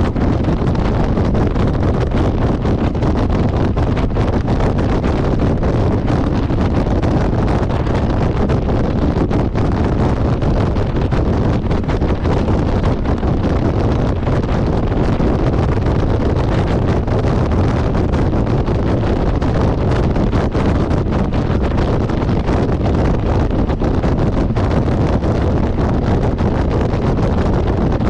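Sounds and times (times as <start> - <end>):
motorcycle running: 0.0 - 28.0
wind buffeting microphone: 0.0 - 28.0.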